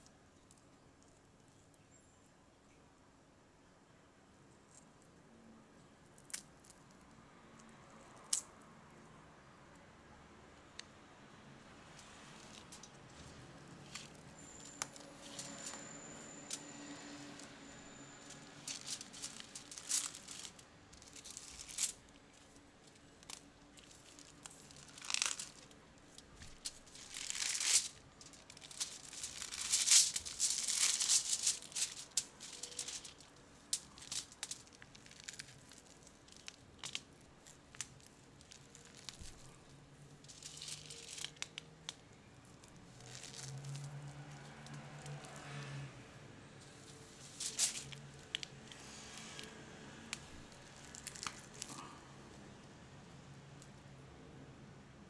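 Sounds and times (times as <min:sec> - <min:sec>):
wrapping sheet crinkling: 0:12.0 - 0:45.4, 0:46.7 - 0:52.0
chocolate and biscuits crunching: 0:18.3 - 0:45.5, 0:47.2 - 0:52.6.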